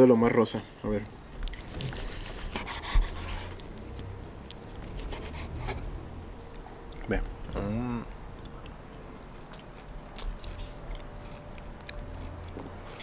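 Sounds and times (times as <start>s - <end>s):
knife sawing through meat: 2.0s - 3.6s, 4.9s - 5.8s.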